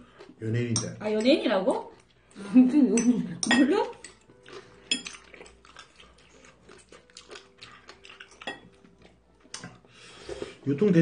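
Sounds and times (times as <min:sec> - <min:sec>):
chopsticks tapping dishes: 0:00.7 - 0:02.1, 0:02.9 - 0:06.0, 0:06.7 - 0:09.8.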